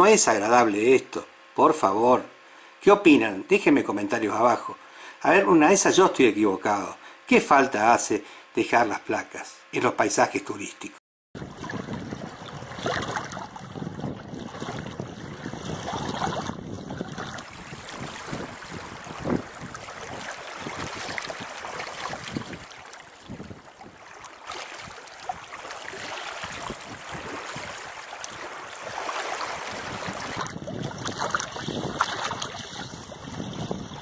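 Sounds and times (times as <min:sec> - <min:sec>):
small waves lapping over pebbles: 0:11.4 - 0:34.0
wind blowing over water: 0:11.4 - 0:34.0.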